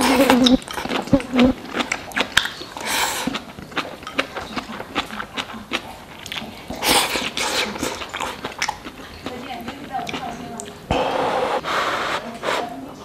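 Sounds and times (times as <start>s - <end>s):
person chewing with wet smacks: 0.0s - 10.8s
breathy sounds: 10.9s - 12.7s.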